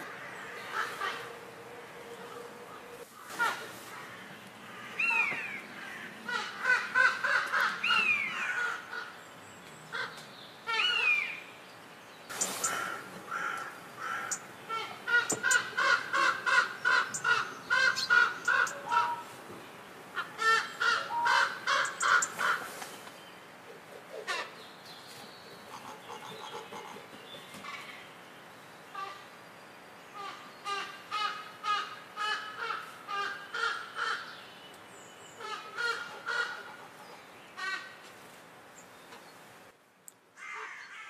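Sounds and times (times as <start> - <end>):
raven harsh calls: 0.0 - 9.2, 12.3 - 19.3, 20.1 - 22.8
raven short falling calls: 12.3 - 19.3.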